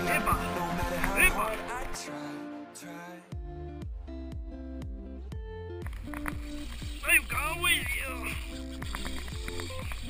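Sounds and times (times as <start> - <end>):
instrumental pop music: 0.0 - 10.0.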